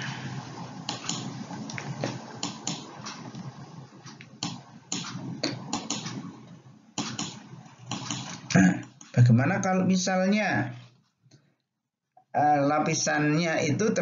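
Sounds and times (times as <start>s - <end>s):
faint steady background noise: 0.0s - 14.0s
short irregular clicks: 0.9s - 3.3s, 4.2s - 6.2s, 7.0s - 9.2s.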